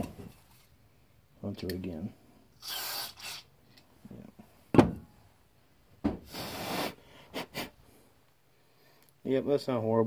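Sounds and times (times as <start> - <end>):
hissing breath puffs: 6.2 - 9.0.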